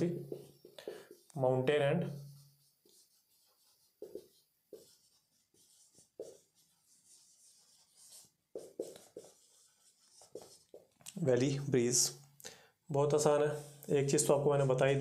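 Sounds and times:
marker writing on whiteboard: 0.0s - 11.1s.

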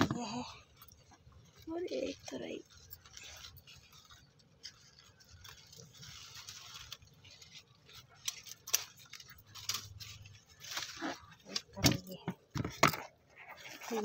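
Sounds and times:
leaves rustling: 0.0s - 12.5s, 13.1s - 14.0s.

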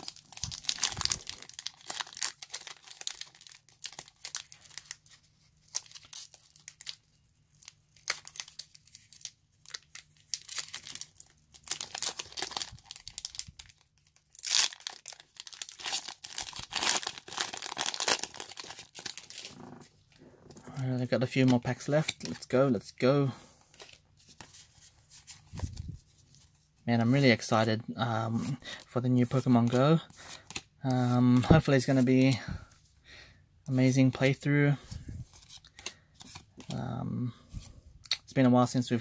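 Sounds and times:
foil wrapper tearing and crinkling: 0.0s - 19.8s
cards being handled: 23.6s - 26.7s.

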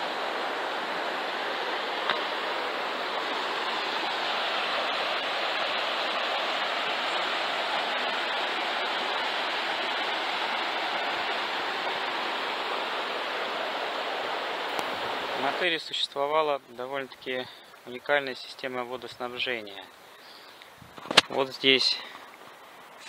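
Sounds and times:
water rushing over rocks: 0.0s - 16.3s.

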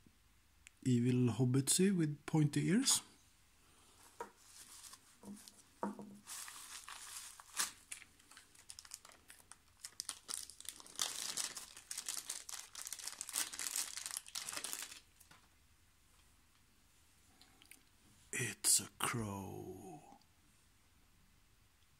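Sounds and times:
bubble wrap crinkling: 4.4s - 15.5s.

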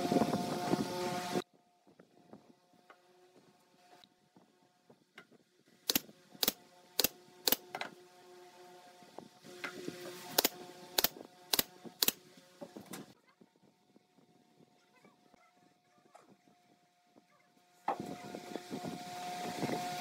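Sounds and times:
pneumatic nailer shots: 5.9s - 7.8s, 10.3s - 12.2s.

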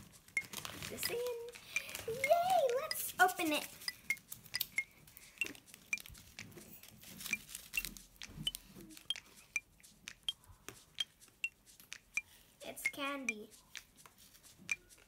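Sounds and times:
sharp ticks with high ping: 0.4s - 6.1s, 8.5s - 10.4s, 11.0s - 14.0s, 14.7s - 15.0s.

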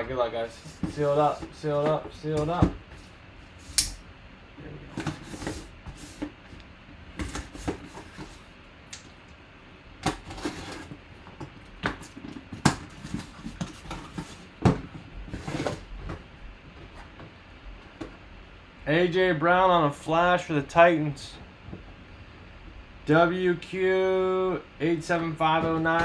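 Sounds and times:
rummaging in cardboard box: 10.1s - 11.0s, 11.9s - 17.2s.

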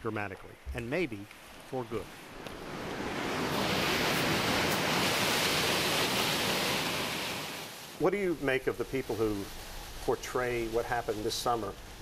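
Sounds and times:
rushing meltwater: 1.2s - 12.0s.

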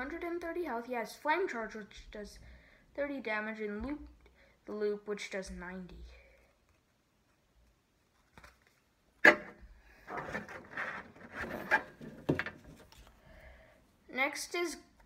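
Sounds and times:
cards rustling and sliding: 6.5s - 8.9s, 10.0s - 13.2s.

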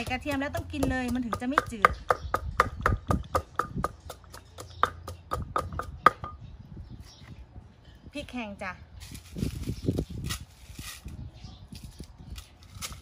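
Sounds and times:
pestle pounding in mortar: 0.0s - 6.4s.

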